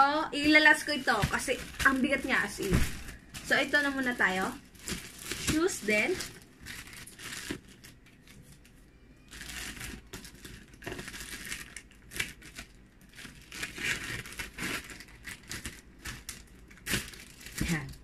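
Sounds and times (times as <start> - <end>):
plastic crinkling: 0.0 - 18.0
scissors cutting plastic pouch: 9.4 - 18.0.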